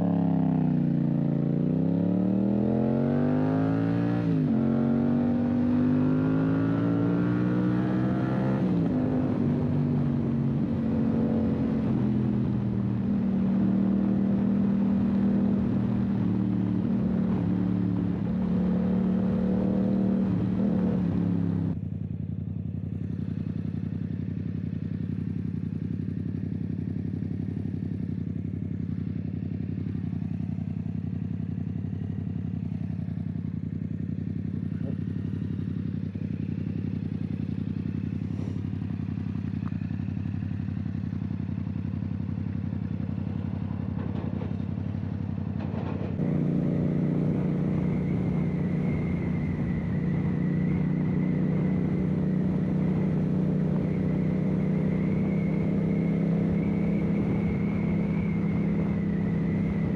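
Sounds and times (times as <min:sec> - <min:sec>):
motorcycle riding at steady speed: 0:00.0 - 0:59.9
motorcycle engine idling: 0:21.7 - 0:46.5.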